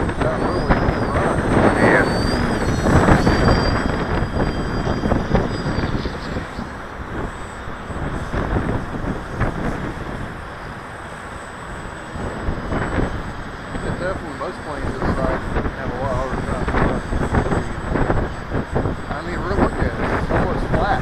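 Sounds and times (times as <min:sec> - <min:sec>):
rushing noise: 0:00.0 - 0:21.0.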